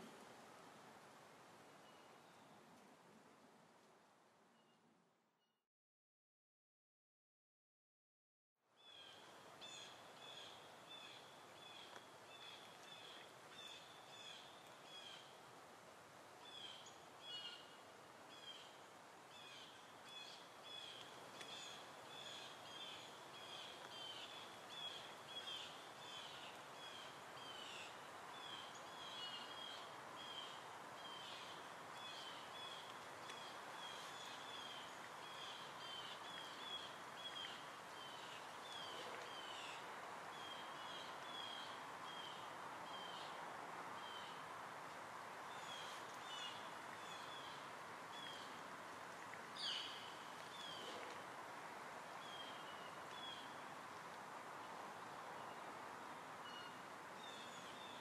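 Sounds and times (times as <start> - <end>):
soft outdoor hiss: 0.0 - 5.6, 8.6 - 58.0.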